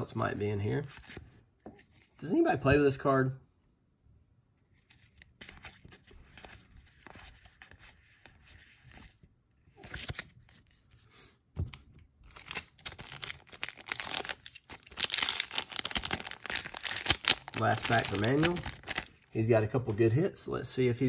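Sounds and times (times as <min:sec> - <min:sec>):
cards rustling: 0:00.3 - 0:02.4, 0:04.7 - 0:20.2
foil wrapper tearing and crinkling: 0:12.3 - 0:19.3.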